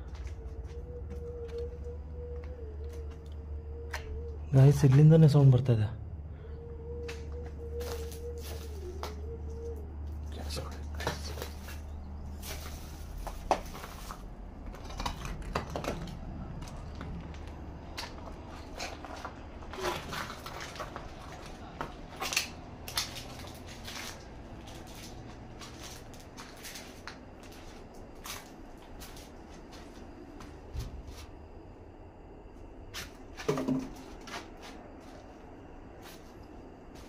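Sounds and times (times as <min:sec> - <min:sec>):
footsteps: 0:00.0 - 0:04.2, 0:07.0 - 0:16.0, 0:16.6 - 0:31.3.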